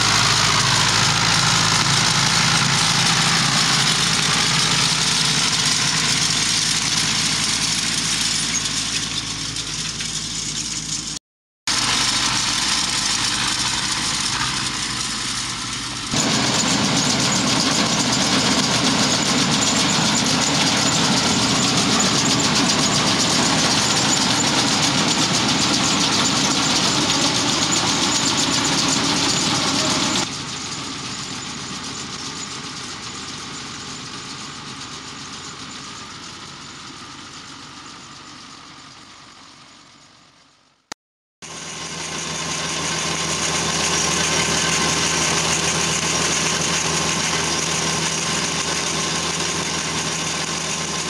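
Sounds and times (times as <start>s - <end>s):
tractor engine running: 0.0s - 40.6s, 41.4s - 51.0s.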